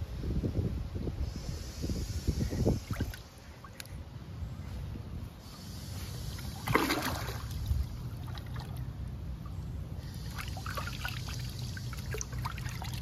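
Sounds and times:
pool water splashing: 0:06.4 - 0:09.6, 0:10.2 - 0:13.0.

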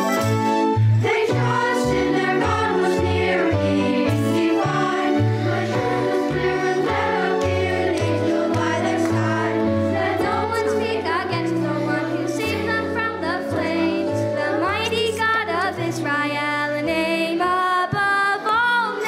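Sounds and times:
instrumental backing: 0:00.0 - 0:19.0
voices singing with vibrato: 0:01.0 - 0:16.0.

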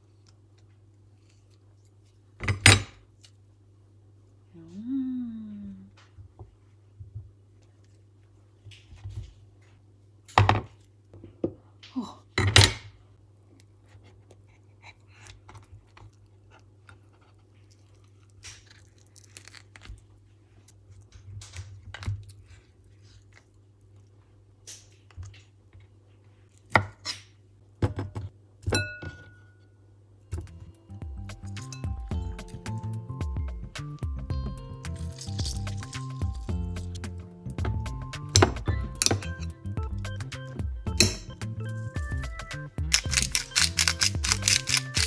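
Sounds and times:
ringing clink on glass bowl: 0:28.8 - 0:29.6
knife and spoon knocking and scraping: 0:31.3 - 0:33.0, 0:34.6 - 0:39.6, 0:40.9 - 0:41.4, 0:42.8 - 0:45.0.

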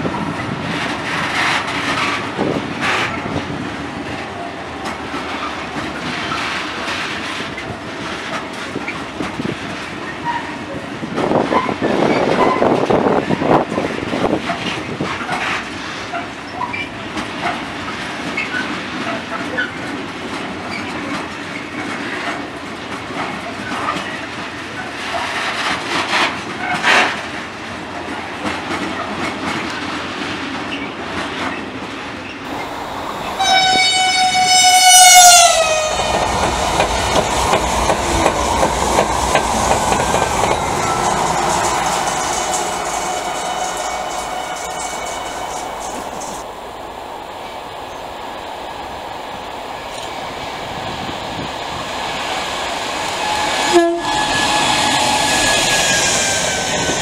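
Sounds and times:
rush of passing train: 0:00.0 - 0:57.0
train horn blast: 0:32.5 - 0:37.8, 0:40.0 - 0:46.4, 0:53.1 - 0:56.6
wheels clicking over rail joints: 0:32.5 - 0:42.1
flange squeals: 0:32.5 - 0:50.0, 0:50.8 - 0:57.0.

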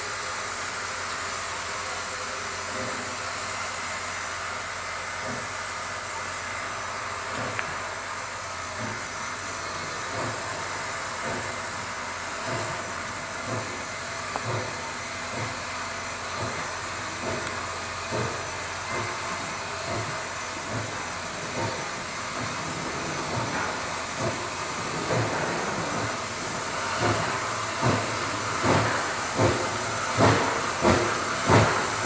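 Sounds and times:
steam hissing: 0:00.0 - 0:32.0
steam locomotive chuffing: 0:00.0 - 0:32.0.

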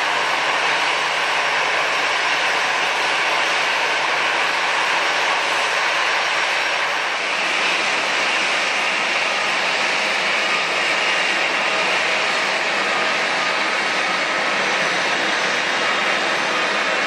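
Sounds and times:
jet engines running: 0:00.0 - 0:17.0.

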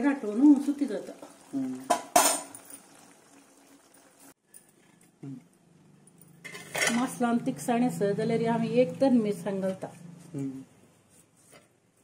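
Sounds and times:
steel kitchenware clink: 0:01.9 - 0:02.8, 0:06.4 - 0:07.2.

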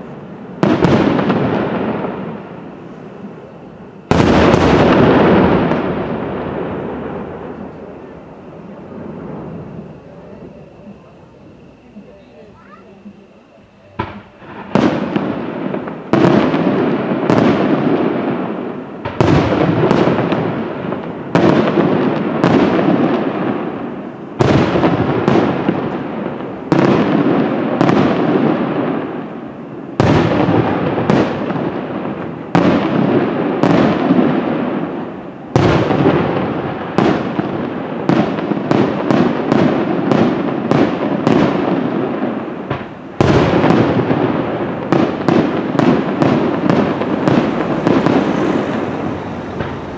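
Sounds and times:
firework shells bursting: 0:30.0 - 0:49.9.

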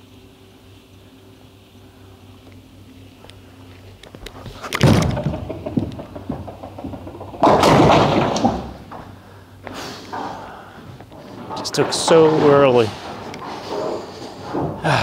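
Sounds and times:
bowling ball thud and rolling: 0:04.5 - 0:09.2
bowling pins clattering: 0:04.5 - 0:15.0.

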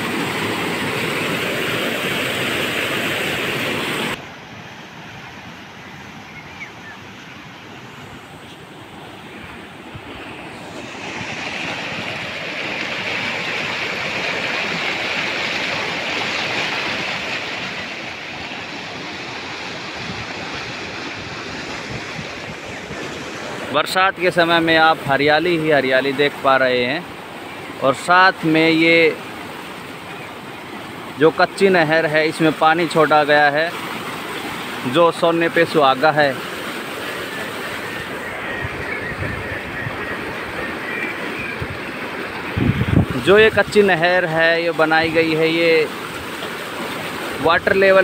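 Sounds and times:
flowing water rushing: 0:00.0 - 0:48.0
water gushing from outlet: 0:10.0 - 0:24.3.

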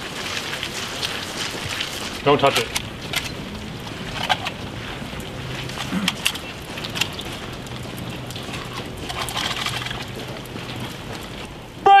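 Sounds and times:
outdoor background noise: 0:00.0 - 0:12.0
rifles and gear clicking: 0:02.6 - 0:03.4, 0:05.7 - 0:10.9.

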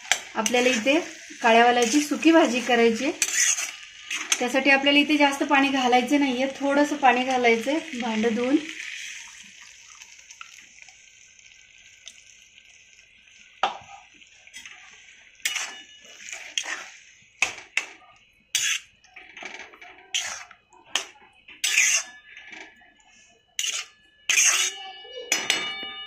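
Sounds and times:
metal spatula scraping iron pan: 0:00.0 - 0:04.8, 0:14.6 - 0:14.8, 0:15.4 - 0:22.8, 0:23.6 - 0:24.8
faint sizzle in a pan: 0:00.0 - 0:25.4.

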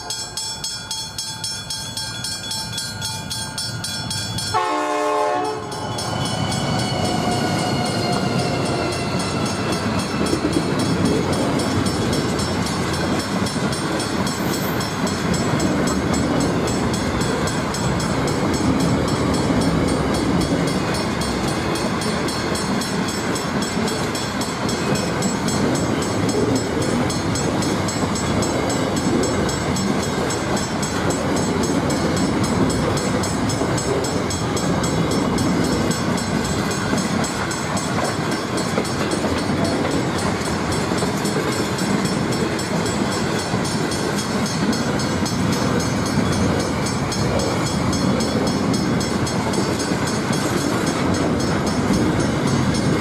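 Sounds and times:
train wheels running on rails: 0:00.0 - 0:53.0.

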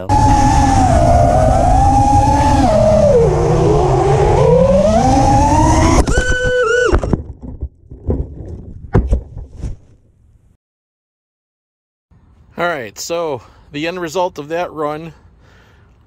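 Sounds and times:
drone crash crack: 0:00.0 - 0:07.2
drone motors whining: 0:00.0 - 0:07.2.

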